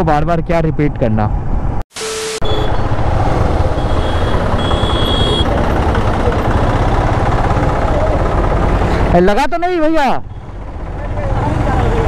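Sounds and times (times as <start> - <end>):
static glitch effect: 1.9 - 5.5
motorcycle engine: 2.4 - 9.6, 10.2 - 12.0
street traffic rumble: 2.4 - 12.0.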